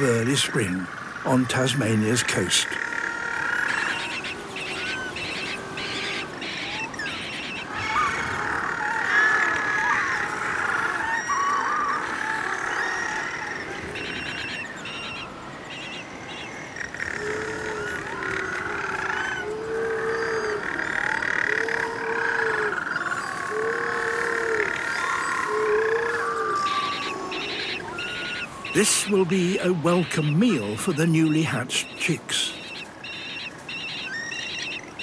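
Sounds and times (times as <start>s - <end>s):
low drawn-out penguin calls: 0.0s - 35.0s
penguins calling: 0.0s - 35.0s.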